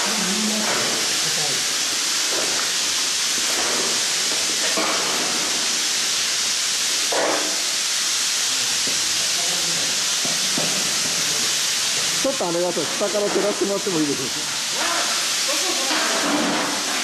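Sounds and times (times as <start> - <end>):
steady loud hiss: 0.0 - 17.0.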